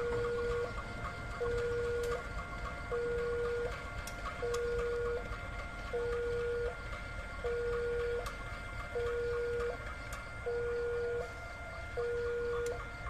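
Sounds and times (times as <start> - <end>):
two-tone crossing alarm: 0.0 - 13.0.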